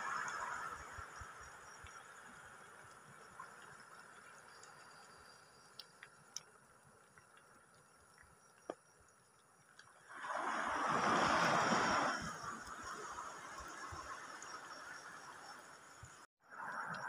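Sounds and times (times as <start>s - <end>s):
faint clicks: 1.8s - 9.9s
water washing over reef: 10.0s - 15.5s.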